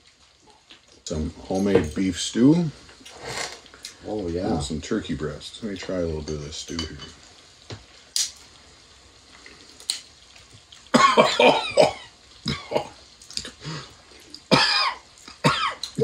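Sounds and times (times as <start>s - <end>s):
man coughing: 11.0s - 13.0s, 14.5s - 15.8s.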